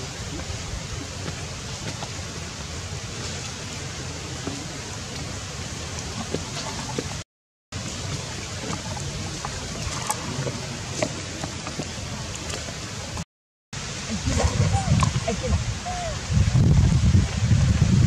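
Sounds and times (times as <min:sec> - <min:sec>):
splashing in shallow water: 0:00.0 - 0:07.2, 0:07.8 - 0:13.2, 0:13.8 - 0:18.0
running water: 0:00.0 - 0:13.2, 0:13.8 - 0:18.0.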